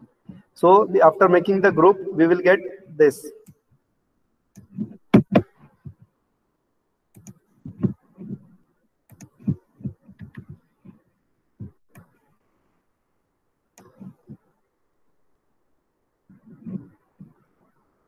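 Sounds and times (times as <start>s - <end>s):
computer mouse clicking: 7.1s - 8.5s, 9.1s - 11.0s, 11.6s - 12.2s, 13.8s - 14.4s.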